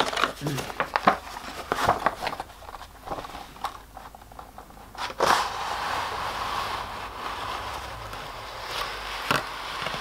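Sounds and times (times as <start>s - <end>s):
cardboard scraping: 0.0s - 3.8s, 4.8s - 10.0s
cardboard clicks and rustles: 0.0s - 5.4s.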